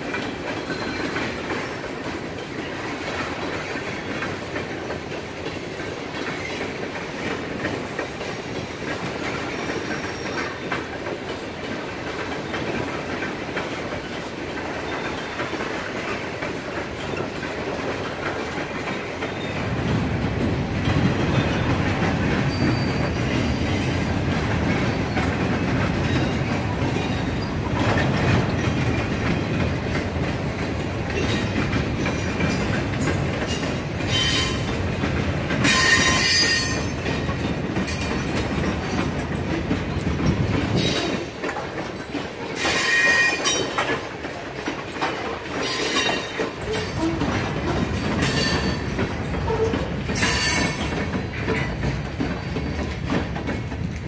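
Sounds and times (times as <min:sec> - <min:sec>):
train cars rumbling and clattering: 0:00.0 - 0:54.0
metallic wheel squeals: 0:22.5 - 0:23.2.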